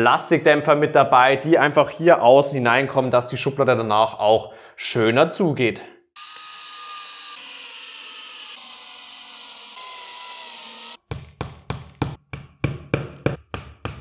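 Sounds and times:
cordless drill whining: 6.2 - 11.0
hammer tapping wood panel: 11.1 - 14.0.

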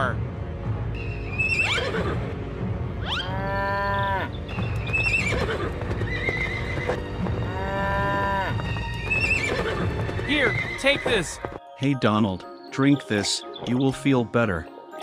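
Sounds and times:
light background music: 0.0 - 15.0
farm animal calls: 1.3 - 2.2, 3.0 - 11.5.

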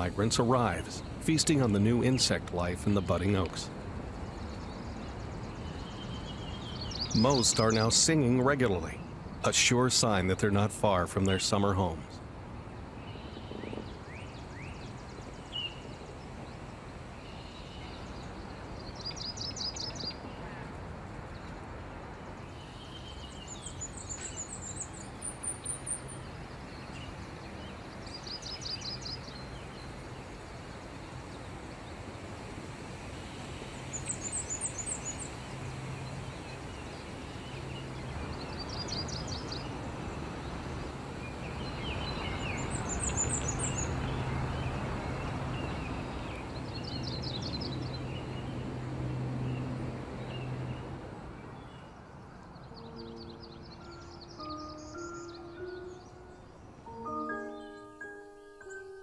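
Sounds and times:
warblers singing: 0.0 - 12.2, 33.0 - 48.7, 52.6 - 59.0.

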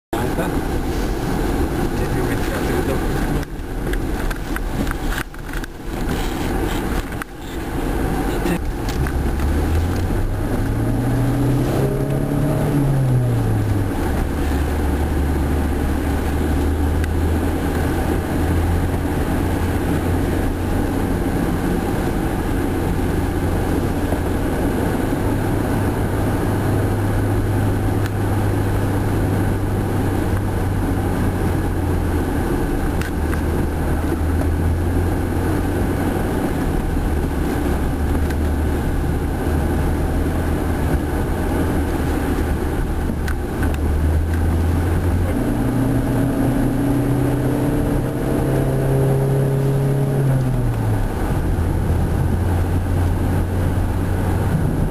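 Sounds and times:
road hiss: 0.2 - 12.8
car engine from inside cabin: 0.2 - 54.9.

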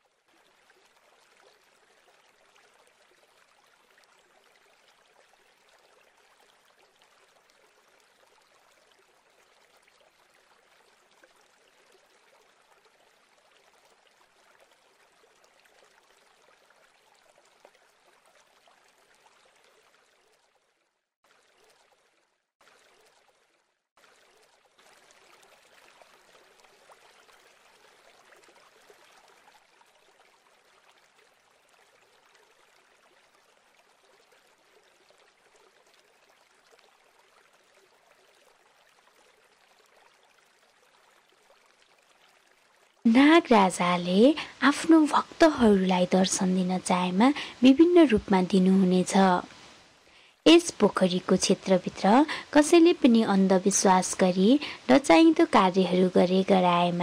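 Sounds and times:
faint steady hiss: 40.0 - 57.0.

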